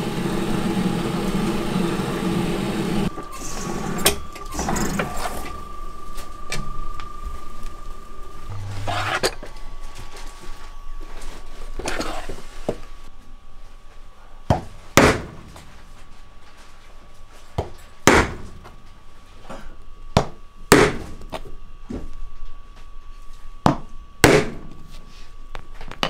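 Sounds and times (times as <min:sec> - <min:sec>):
mallet striking metal punch: 0:24.2 - 0:24.7.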